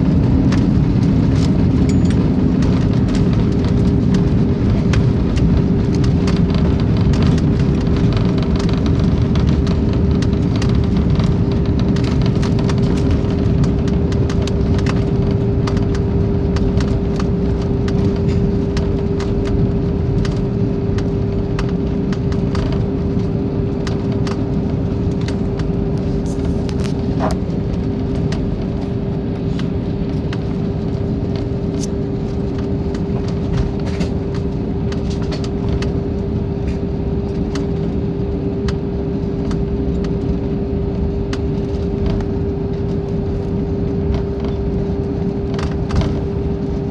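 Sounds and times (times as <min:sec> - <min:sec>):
airplane cabin rumble: 0:00.0 - 0:46.9
constant hum: 0:00.0 - 0:46.9.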